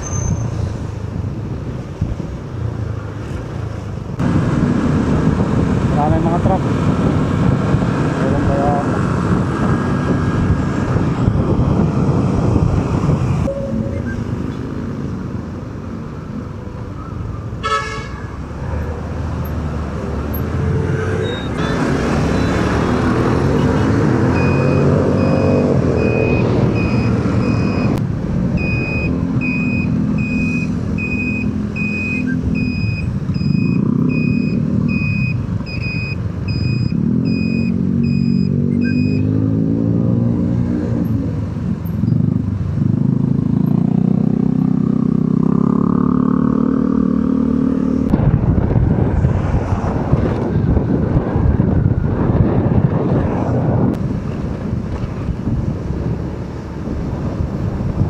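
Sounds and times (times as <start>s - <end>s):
wind on microphone: 4.1s - 14.5s, 47.5s - 58.0s
high beeps: 24.3s - 28.0s, 28.6s - 39.3s
motorcycle engine revving: 36.8s - 48.1s.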